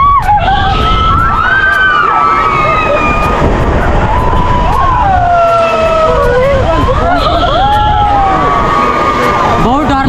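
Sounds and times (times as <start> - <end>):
riders screaming: 0.0 - 9.6
low rumble: 2.1 - 8.7.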